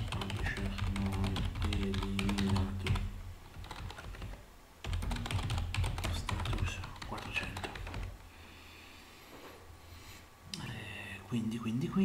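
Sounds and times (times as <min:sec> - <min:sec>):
computer keyboard typing: 0:00.0 - 0:08.2.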